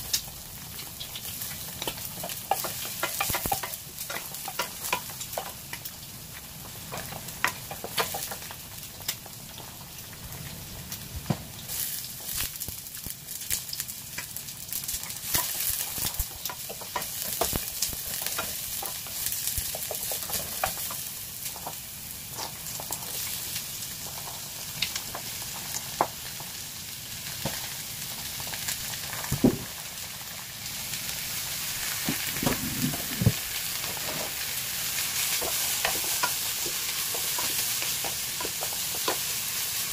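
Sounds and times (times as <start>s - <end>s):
garlic and onion sizzling in oil: 0.0s - 39.9s
louder knock: 29.3s - 29.7s
wooden spoon scraping a pan: 31.8s - 34.4s.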